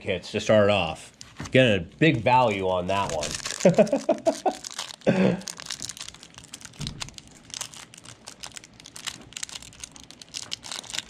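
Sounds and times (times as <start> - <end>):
foil wrapper crinkling: 2.4 - 11.0.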